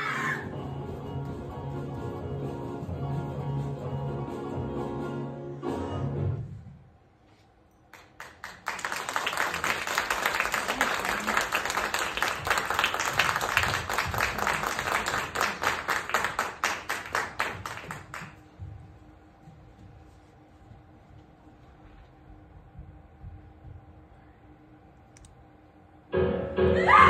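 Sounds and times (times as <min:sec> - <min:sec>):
audience applauding: 0:07.9 - 0:18.5.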